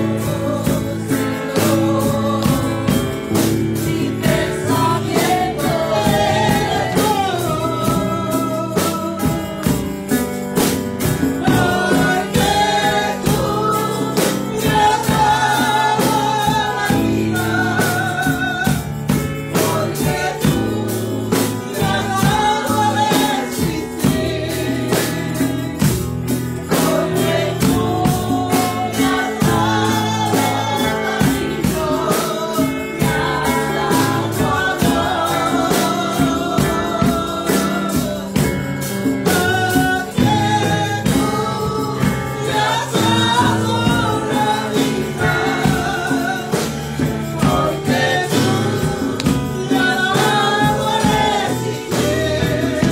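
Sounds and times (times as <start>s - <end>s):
electric bass guitar: 0.0s - 52.9s
steady percussive beat: 0.0s - 52.9s
tambourine: 0.0s - 52.9s
woman singing into a microphone: 0.0s - 52.9s.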